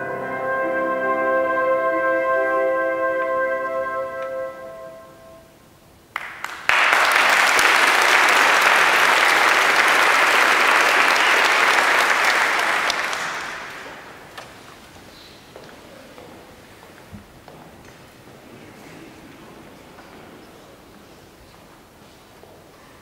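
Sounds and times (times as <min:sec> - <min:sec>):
audience applauding: 0:06.1 - 0:14.7.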